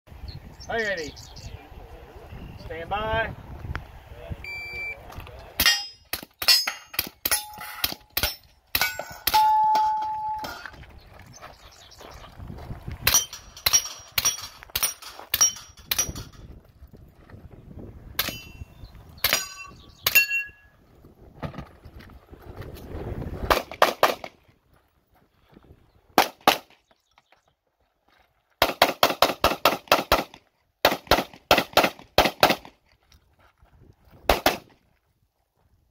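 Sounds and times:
steel target ringing: 5.6s - 10.7s, 18.2s - 18.7s, 19.3s - 20.7s
gunshots: 23.4s - 24.4s, 26.2s - 26.7s, 28.6s - 32.7s, 34.3s - 34.7s.

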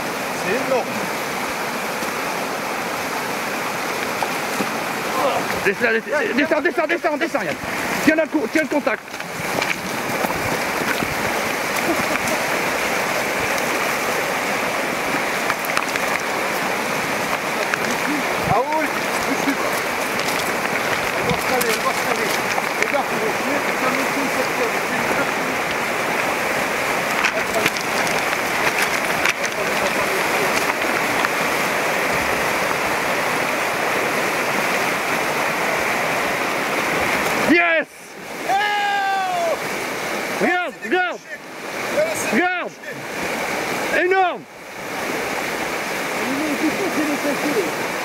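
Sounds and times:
river rushing over rocks: 0.0s - 48.0s.

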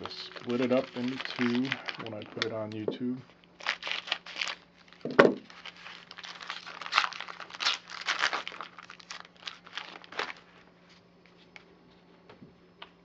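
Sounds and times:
scissors cutting foil: 0.0s - 2.8s, 5.4s - 10.4s
foil wrapper crinkling: 0.0s - 11.0s.

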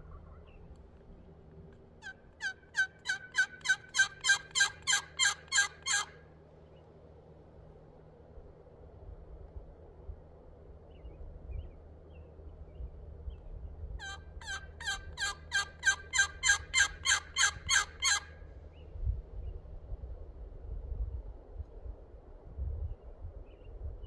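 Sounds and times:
low wind rumble: 0.0s - 24.0s
turkey yelps: 2.0s - 6.2s, 14.0s - 18.4s.

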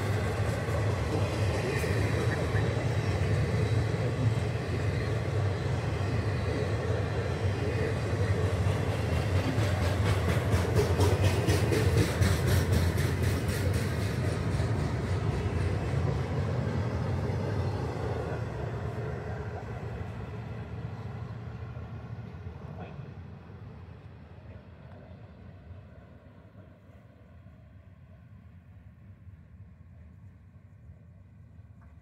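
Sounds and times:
wheels clicking on rail joints: 0.0s - 17.1s
freight train rumbling past: 0.0s - 32.0s.

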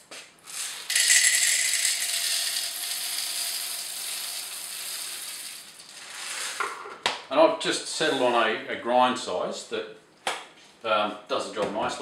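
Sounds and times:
coffee beans pouring and rattling: 0.4s - 6.6s.

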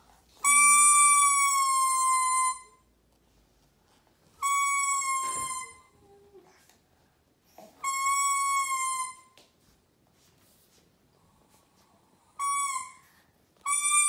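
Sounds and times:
toy trumpet notes: 13.6s - 14.0s.

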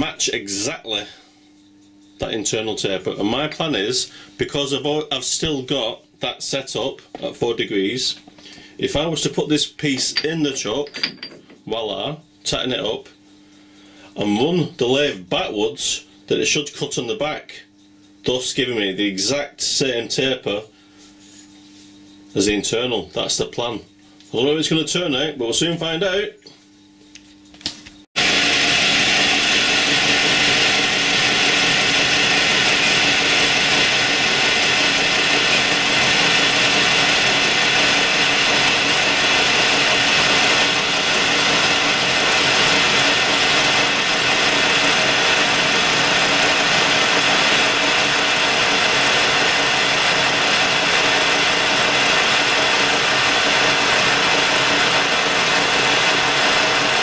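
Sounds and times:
metal lathe whirring: 28.2s - 57.0s.

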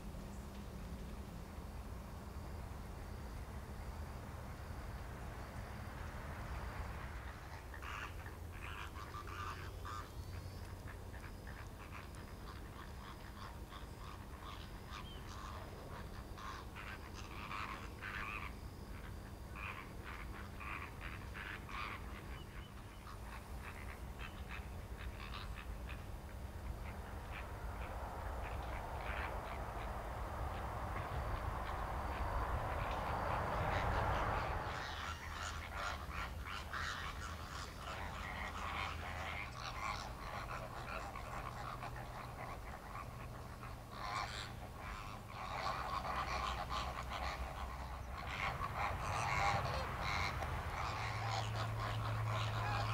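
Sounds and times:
flamingos calling: 6.2s - 52.9s
steady low rumble: 22.8s - 52.9s.

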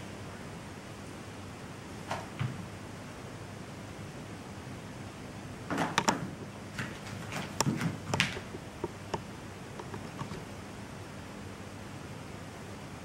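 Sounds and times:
knocking and scuffing on floor: 6.8s - 9.0s.

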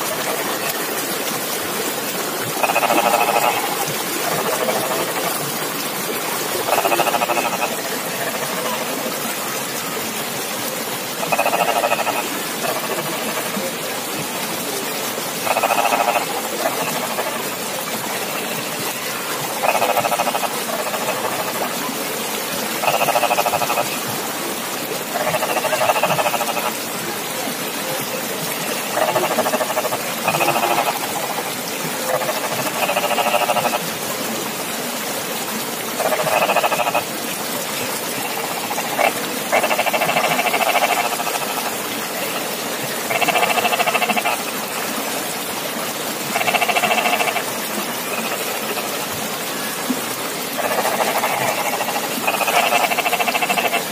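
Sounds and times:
frog calling: 2.6s - 5.4s, 6.6s - 8.9s, 11.2s - 13.6s, 15.4s - 18.5s, 19.5s - 21.7s, 22.8s - 24.0s, 25.1s - 26.8s, 28.6s - 33.8s, 36.0s - 37.1s, 38.2s - 44.8s, 46.3s - 49.0s, 50.6s - 53.9s.

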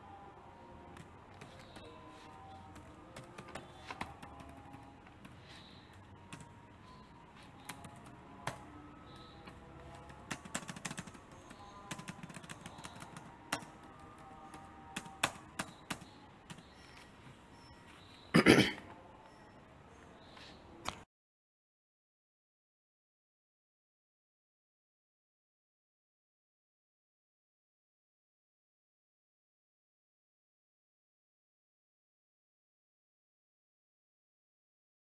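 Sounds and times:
faint steady tones: 0.0s - 20.8s
low background noise: 0.0s - 21.1s.

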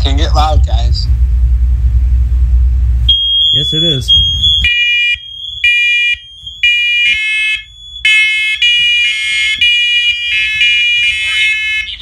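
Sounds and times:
smoke alarms beeping: 3.1s - 12.0s
steady high alarm tone: 3.1s - 12.0s.

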